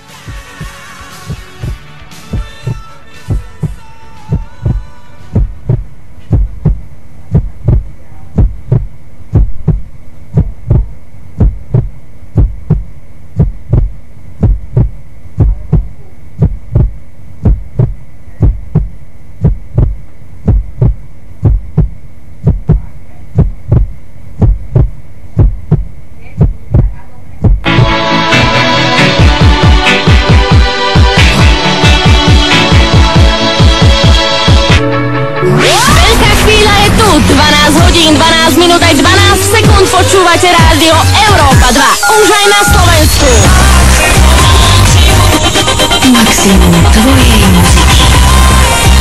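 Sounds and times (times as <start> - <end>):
steady hum: 0.0 - 49.0
heartbeat thumps: 0.3 - 28.5, 29.1 - 34.8, 35.8 - 41.9, 42.6 - 49.0.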